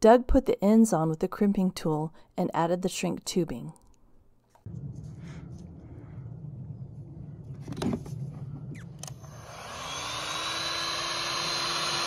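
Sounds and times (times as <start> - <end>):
low steady rumble: 4.6 - 9.6
heat gun fan whine and blowing: 4.7 - 12.0.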